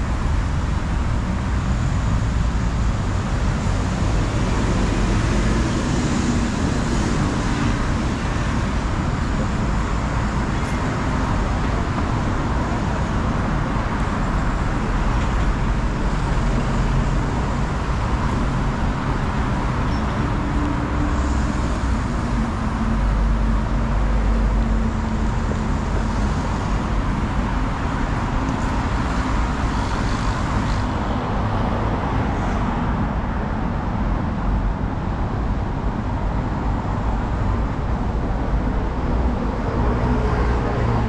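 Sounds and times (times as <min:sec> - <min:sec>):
city road traffic: 0:00.0 - 0:41.0.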